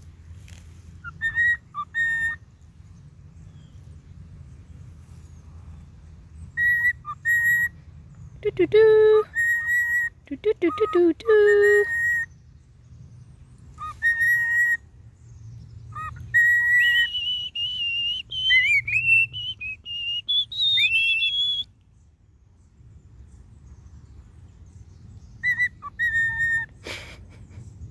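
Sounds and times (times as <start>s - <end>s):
cockatiel whistling: 1.0s - 2.4s, 6.6s - 7.7s, 13.8s - 14.8s, 16.0s - 21.7s, 25.4s - 26.7s.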